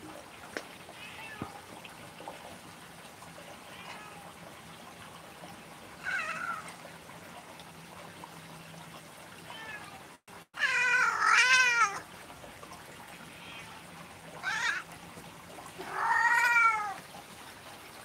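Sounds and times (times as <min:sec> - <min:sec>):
cat meowing: 0:15.8 - 0:17.0.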